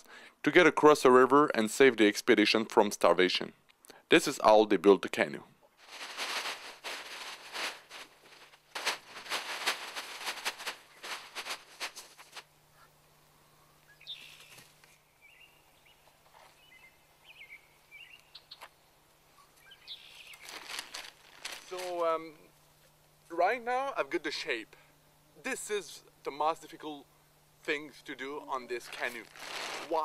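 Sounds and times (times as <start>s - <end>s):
plastic tarpaulin crinkling: 5.8s - 12.5s, 20.2s - 22.1s, 28.8s - 30.0s
faint bird chirps: 13.5s - 18.7s, 19.3s - 20.6s.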